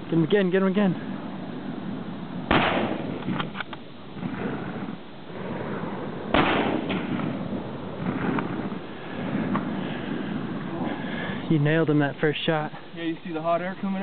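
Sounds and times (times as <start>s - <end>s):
rifle shots with echo: 2.5s - 9.4s.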